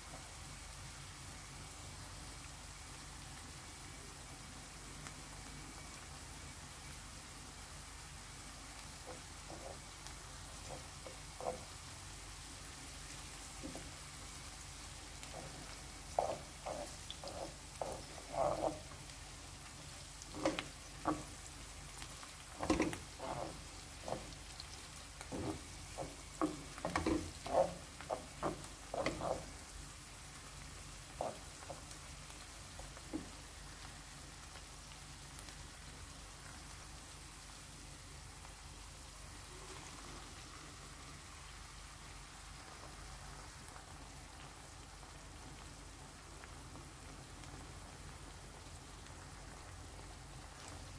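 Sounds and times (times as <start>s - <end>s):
frying sizzle: 0.0s - 50.9s
wooden spatula scraping pan: 9.1s - 9.9s, 10.6s - 11.7s, 13.6s - 14.0s, 15.2s - 19.1s, 20.2s - 29.6s, 31.2s - 31.9s.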